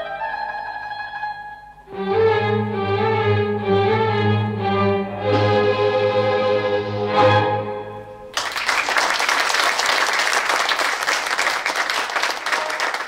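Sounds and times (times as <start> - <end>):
audience applause: 8.3 - 13.0.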